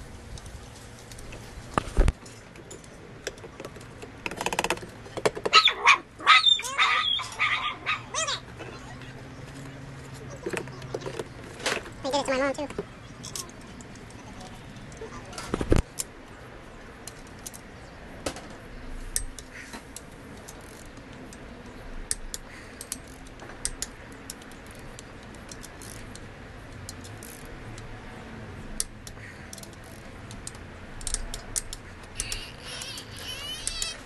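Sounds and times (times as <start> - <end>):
torque wrench ratchet clicking: 22.1 - 27.9, 28.8 - 34.0.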